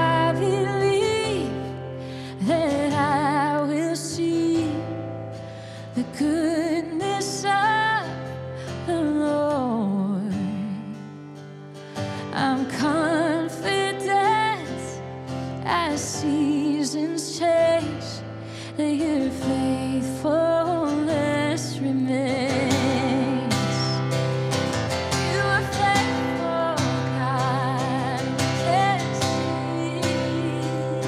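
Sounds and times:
woman singing worship song: 0:00.0 - 0:05.1, 0:12.2 - 0:15.0, 0:15.6 - 0:24.1, 0:25.1 - 0:31.0
strummed acoustic guitar: 0:00.0 - 0:31.0.

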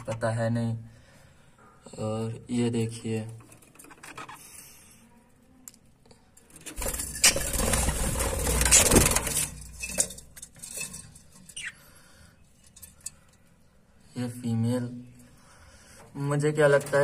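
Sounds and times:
bird wings flapping: 0:06.8 - 0:09.5.

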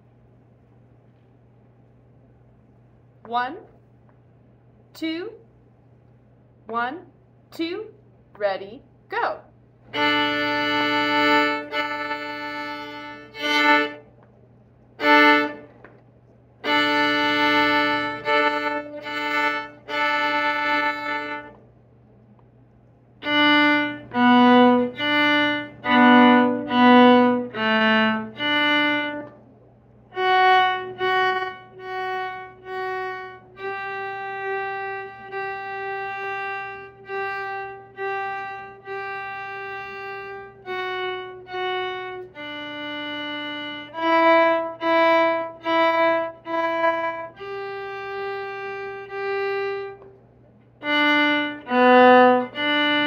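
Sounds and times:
solo viola melody: 0:09.9 - 0:14.1, 0:15.0 - 0:15.7, 0:16.6 - 0:21.6, 0:23.2 - 0:29.4, 0:30.1 - 0:50.1, 0:50.8 - 0:53.0.

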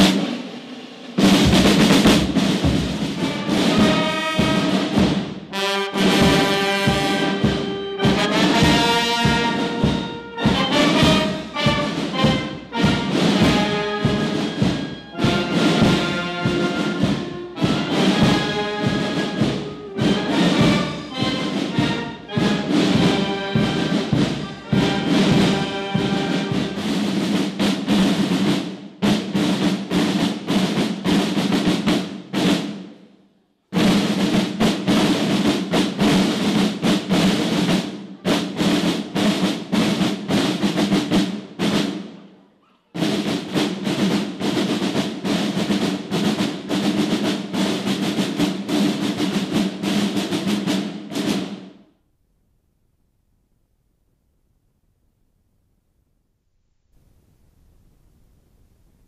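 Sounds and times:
brass tune: 0:00.0 - 0:32.9, 0:43.0 - 0:51.6
snare drums playing rolls: 0:00.0 - 0:42.3, 0:42.9 - 0:51.9.

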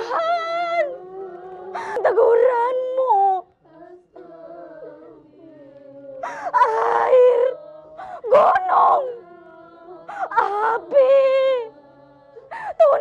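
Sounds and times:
woman wailing and sobbing: 0:00.0 - 0:03.4, 0:06.2 - 0:09.2, 0:10.1 - 0:11.7, 0:12.5 - 0:13.0
woman whimpering: 0:06.2 - 0:07.5, 0:12.5 - 0:13.0.

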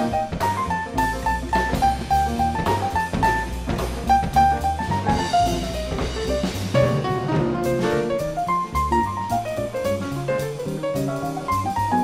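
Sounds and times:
bass: 0:00.0 - 0:12.0
drum kit with cymbals: 0:00.0 - 0:12.0.

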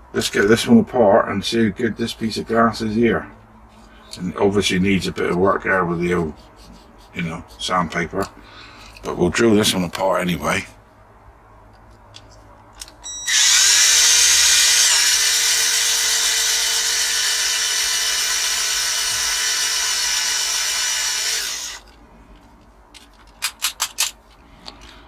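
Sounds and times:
small electric drill whining: 0:13.0 - 0:21.9.

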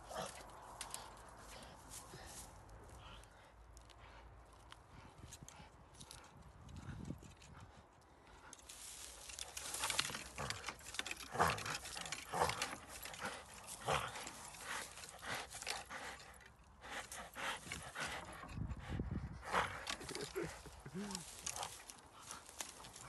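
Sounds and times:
dog gnawing wood: 0:00.0 - 0:01.9, 0:08.4 - 0:18.7, 0:19.4 - 0:23.0
dog growling: 0:10.3 - 0:16.1.

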